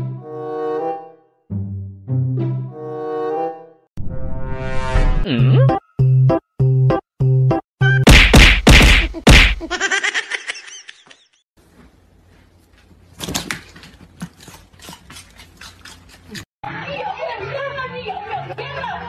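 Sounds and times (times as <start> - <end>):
loud thunks: 8.1 - 9.6.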